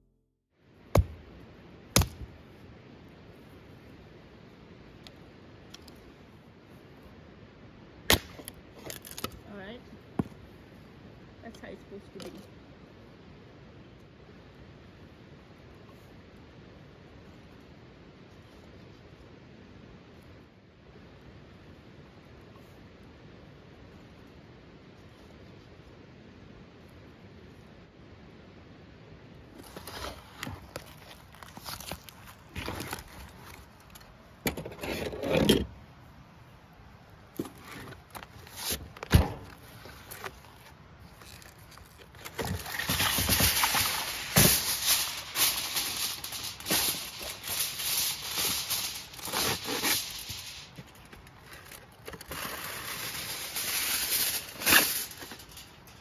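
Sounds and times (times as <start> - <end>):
aluminium foil crinkling: 29.6 - 33.7, 39.7 - 56.0
plastic package rustling: 40.0 - 55.8.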